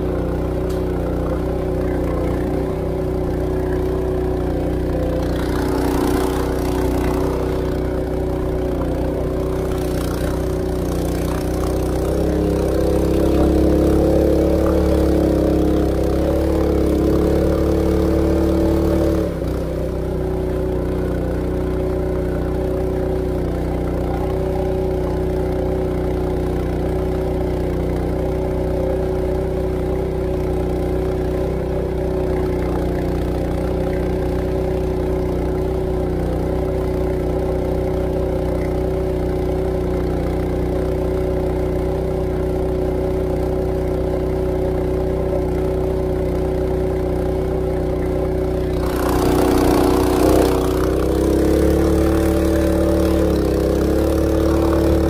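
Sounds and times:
boat engine running at high throttle: 0.0 - 55.0.

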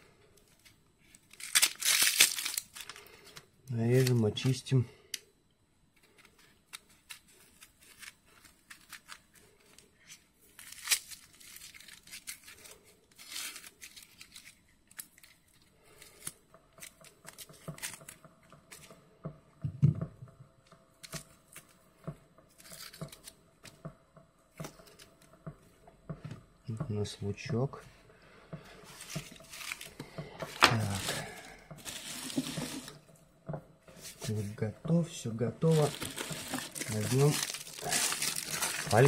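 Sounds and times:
onion skin crackling and tearing: 0.6 - 4.3, 6.2 - 18.3, 22.5 - 23.8, 28.9 - 32.9, 35.6 - 39.0.

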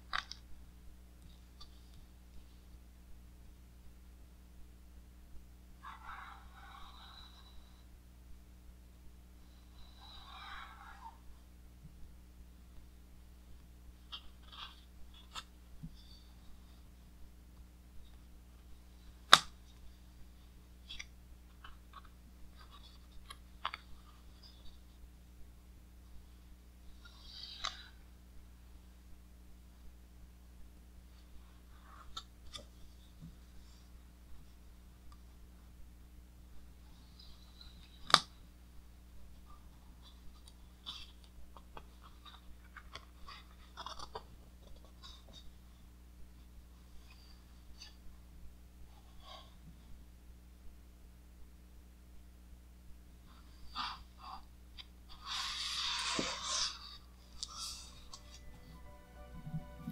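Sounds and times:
book pages rustling: 14.1 - 16.2, 20.8 - 24.6, 39.4 - 45.5, 54.8 - 58.6
book page snapping: 19.3 - 19.6, 38.0 - 38.3
paper rustling: 55.2 - 58.5.

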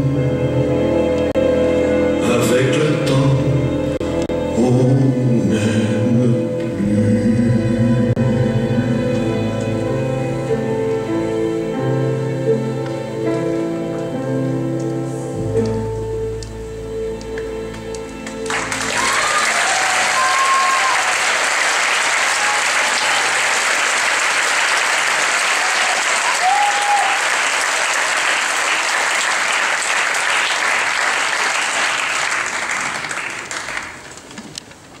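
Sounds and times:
music: 0.0 - 33.9
audience applauding: 17.7 - 34.4
audience calls: 18.4 - 34.1.

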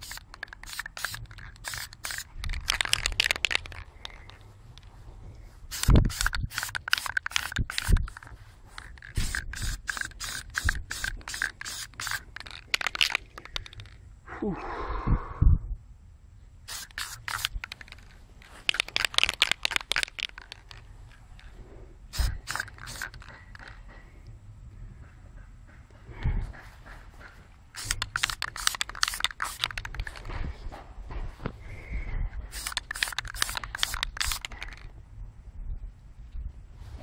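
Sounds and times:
aerosol spray can bursts: 0.0 - 4.3, 5.7 - 13.8, 16.7 - 20.7, 22.1 - 23.7, 27.8 - 30.3, 32.5 - 34.8.

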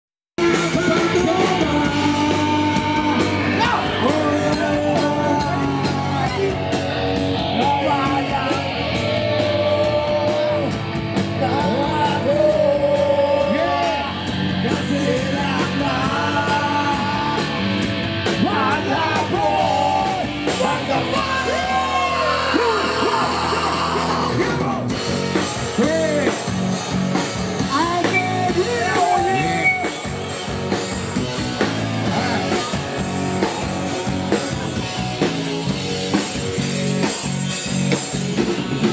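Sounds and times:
man singing into microphone: 0.4 - 6.7, 7.5 - 17.6, 18.4 - 24.8
live band playing: 0.4 - 38.9.

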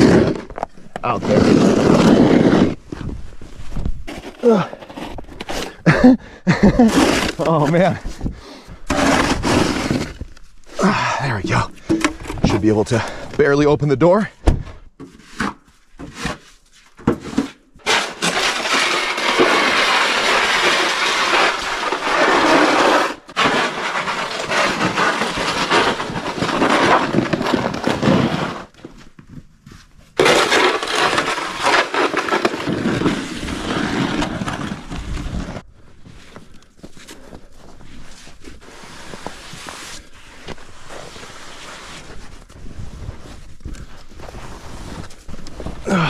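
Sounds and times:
snow shovel scraping concrete: 0.0 - 3.2, 4.1 - 10.3, 17.1 - 28.7, 30.2 - 35.6, 38.1 - 43.5
snow brushing off truck: 8.9 - 10.2.

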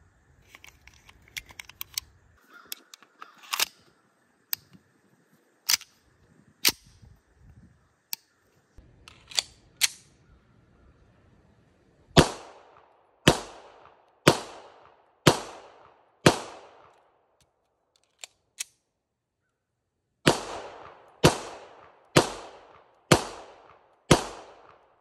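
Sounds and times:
pistol handling clicks: 0.5 - 3.9, 9.1 - 10.1, 16.7 - 18.9
pistol shots with echo: 12.2 - 16.9, 20.2 - 25.0.

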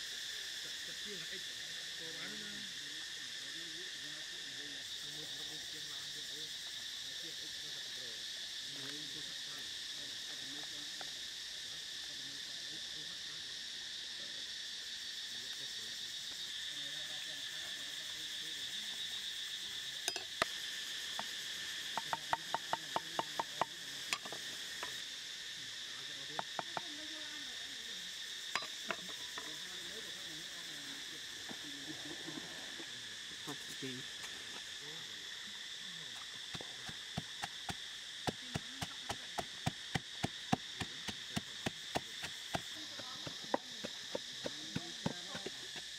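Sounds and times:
insects chirring: 0.0 - 45.9
cleaver tapping on wooden board: 21.9 - 24.4.

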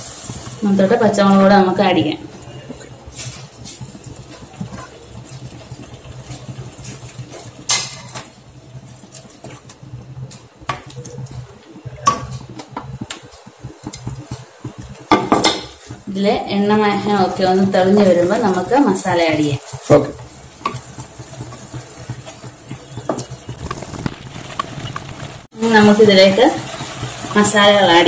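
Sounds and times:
wooden spatula scraping a pan: 2.7 - 8.2.

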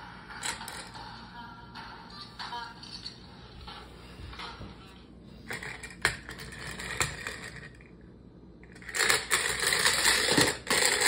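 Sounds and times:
clockwork toy rattling on tile: 8.8 - 11.0.

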